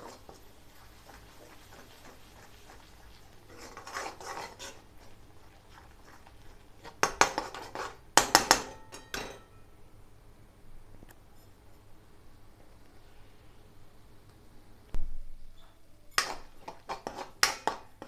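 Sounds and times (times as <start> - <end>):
spatula scraping paste in pan: 0.0 - 8.6, 16.2 - 17.9
spatula knocking against pan: 8.2 - 9.4, 16.2 - 18.0.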